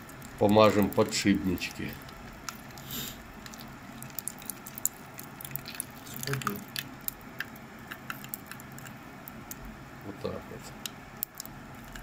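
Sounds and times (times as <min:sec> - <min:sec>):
gas torch hissing: 0:02.7 - 0:03.4.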